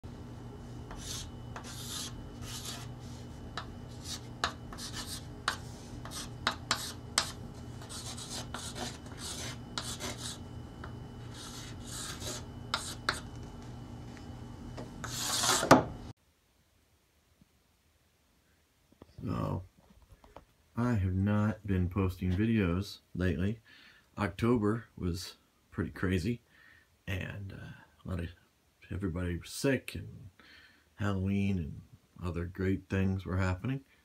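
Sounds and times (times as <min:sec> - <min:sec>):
chalk scratching on a chalkboard: 0:00.9 - 0:10.4, 0:11.3 - 0:13.3, 0:15.0 - 0:15.8.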